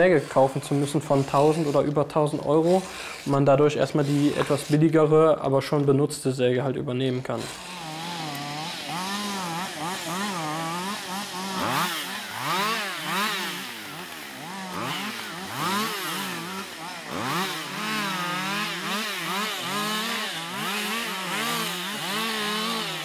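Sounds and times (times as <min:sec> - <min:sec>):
chainsaw engine revving: 0:00.0 - 0:05.8, 0:07.0 - 0:23.0.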